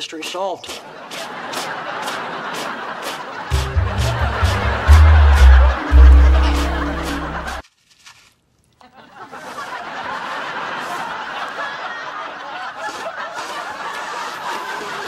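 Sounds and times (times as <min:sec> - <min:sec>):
studio audience laughing: 0:00.9 - 0:07.6, 0:09.0 - 0:15.0
music cue with deep bass: 0:03.5 - 0:07.6.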